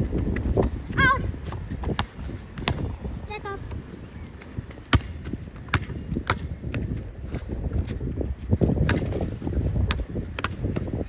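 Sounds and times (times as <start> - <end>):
basketball bouncing: 1.4 - 3.0, 4.6 - 7.1, 8.8 - 9.2, 9.8 - 11.0.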